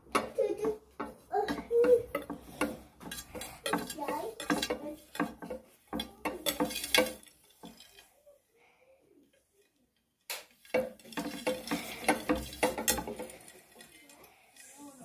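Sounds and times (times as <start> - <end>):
small objects clattering on marble: 0.1 - 8.2, 10.2 - 14.9.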